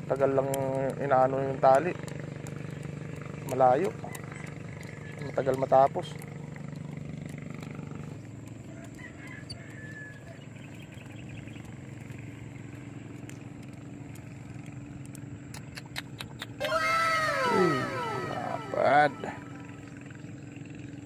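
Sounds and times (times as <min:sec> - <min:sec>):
steady low hum: 0:00.0 - 0:21.0
loud call sliding down in pitch: 0:16.6 - 0:19.6.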